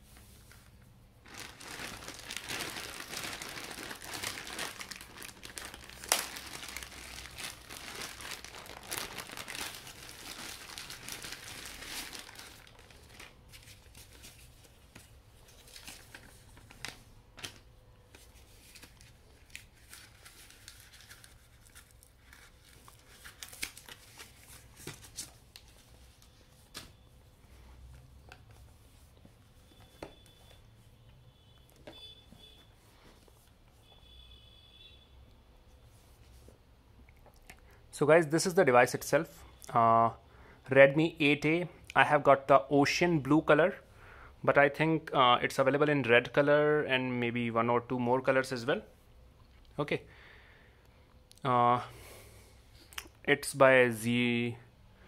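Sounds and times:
plastic bag tearing and crinkling: 1.2s - 14.2s, 18.7s - 25.2s.

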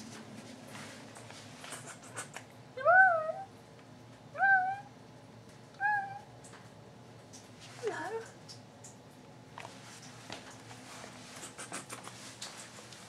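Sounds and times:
faint clicks and rustles: 6.4s - 13.0s.

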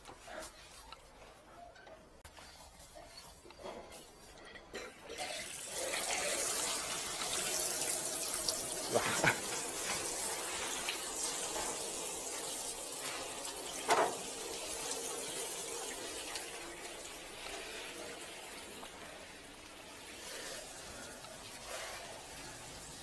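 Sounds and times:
water splashing onto drain grates: 5.2s - 23.0s.

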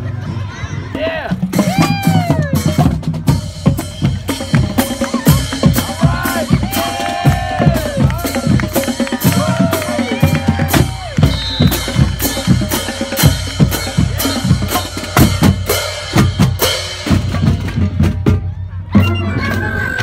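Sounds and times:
bass and snare drums: 0.9s - 19.8s.

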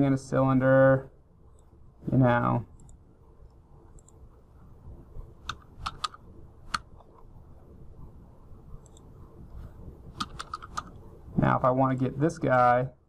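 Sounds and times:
computer keys clicking: 3.9s - 4.2s, 5.4s - 7.1s, 8.8s - 9.1s, 10.2s - 11.0s.

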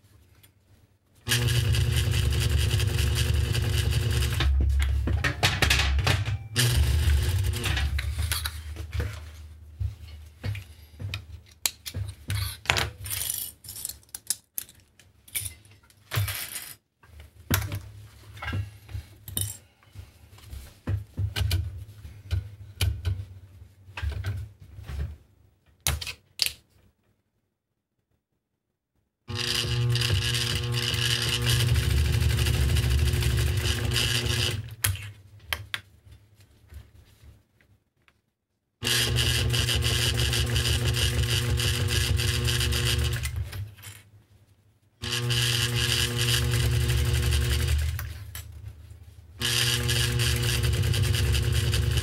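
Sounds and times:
sewing machine stitching: 1.3s - 4.5s, 6.6s - 8.2s, 29.3s - 34.8s, 38.8s - 43.6s, 45.0s - 48.1s, 49.4s - 52.0s.

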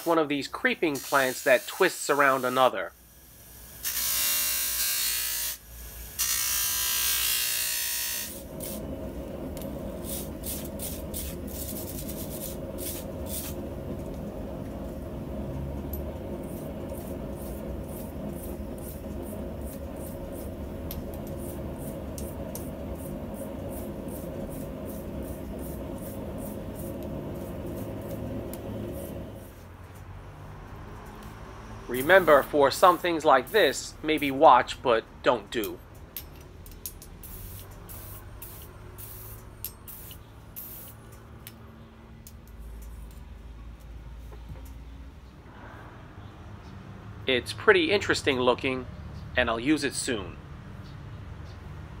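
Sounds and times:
grinder humming: 0.8s - 29.7s
bench grinder grinding metal: 3.7s - 8.8s.

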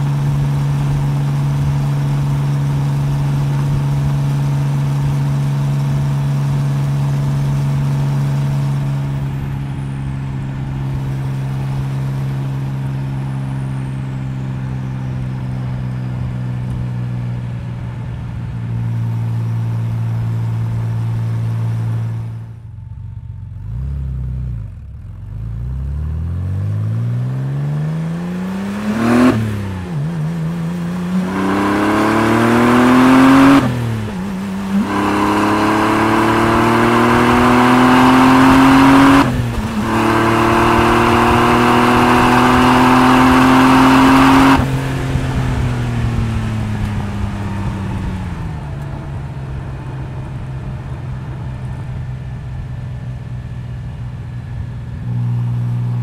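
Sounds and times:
car engine revving and upshifting: 25.8s - 48.4s.

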